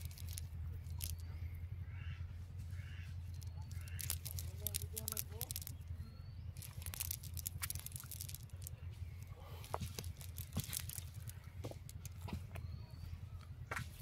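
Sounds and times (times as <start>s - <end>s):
net rustling and clicking: 0.0s - 1.2s, 3.4s - 5.8s, 6.6s - 12.2s
steady low rumble: 0.0s - 14.0s.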